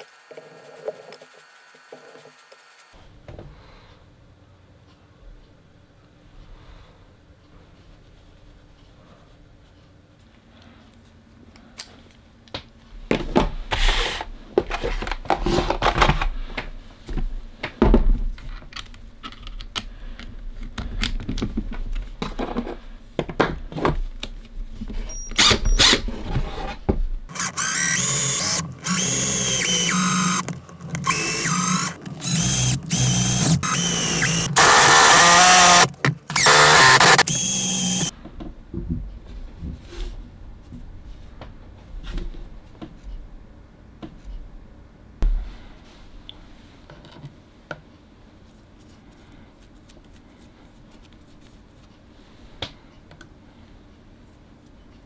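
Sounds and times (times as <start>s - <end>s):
cordless drill running: 27.3s - 38.1s
drill bits clicking and rattling: 27.3s - 38.1s.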